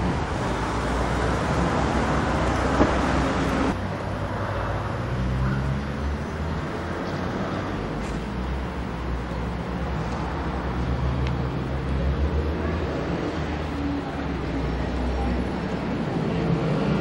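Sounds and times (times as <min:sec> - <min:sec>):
distant road traffic hum: 0:00.0 - 0:17.0.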